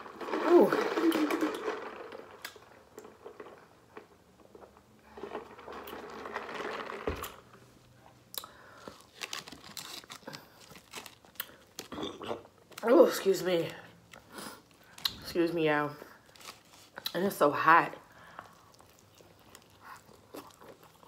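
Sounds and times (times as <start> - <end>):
small clicks and crinkles: 8.4 - 11.9, 16.2 - 17.2, 18.3 - 21.0.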